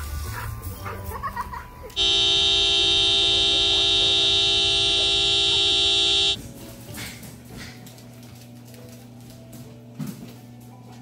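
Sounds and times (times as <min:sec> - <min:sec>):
car horn honking: 0:02.0 - 0:06.4.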